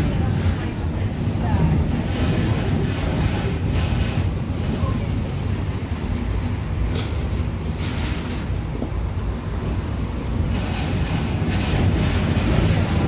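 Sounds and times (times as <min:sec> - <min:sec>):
tram wheels rumbling on rails: 0:00.0 - 0:13.0.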